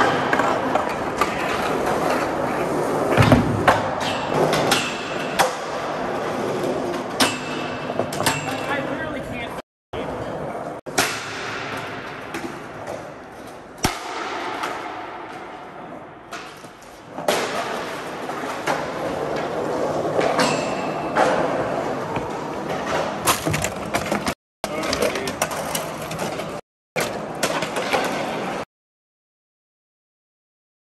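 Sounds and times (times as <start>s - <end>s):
skateboard wheels rolling on concrete: 0.0s - 7.2s, 14.5s - 20.4s.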